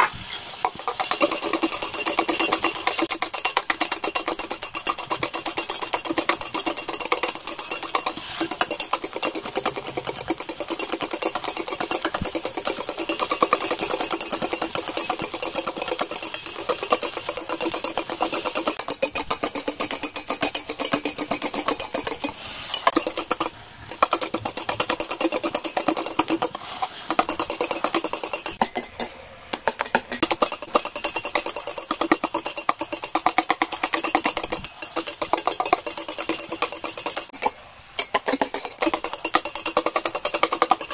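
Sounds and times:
electric hand mixer whirring: 0:00.5 - 0:28.7
beaters ticking against bowl: 0:00.5 - 0:40.9.

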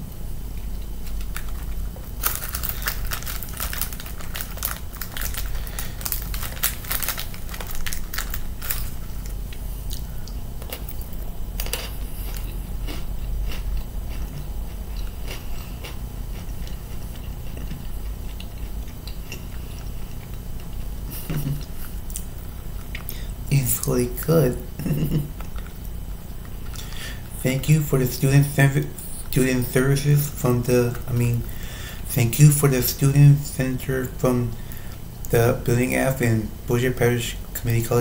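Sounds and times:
crunching biscuit sticks: 0:00.6 - 0:24.3.

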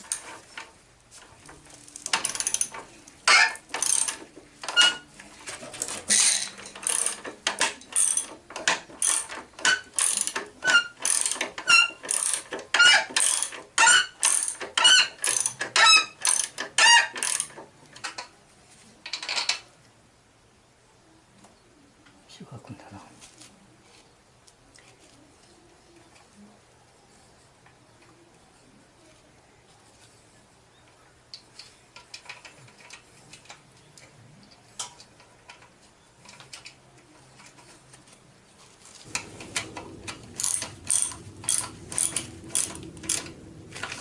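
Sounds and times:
ratchet wrench clicking: 0:02.0 - 0:05.0, 0:06.1 - 0:17.5, 0:40.1 - 0:43.3.

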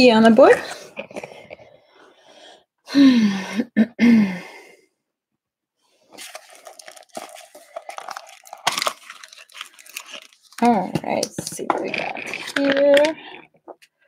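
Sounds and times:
packaging crinkling: 0:06.1 - 0:13.5
person making vocal sounds: 0:11.7 - 0:13.4.

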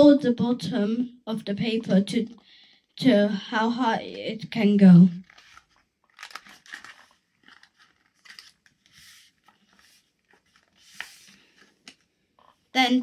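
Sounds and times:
paper folding and crinkling: 0:05.0 - 0:12.6.

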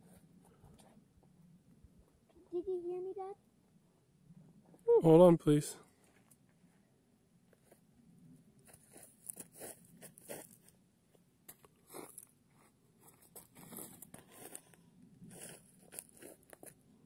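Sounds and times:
footsteps crunching on gravel: 0:08.7 - 0:10.7, 0:13.0 - 0:16.8.

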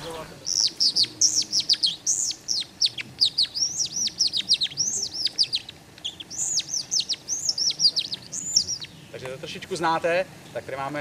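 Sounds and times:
bird call squeaker chirping: 0:00.0 - 0:09.2.

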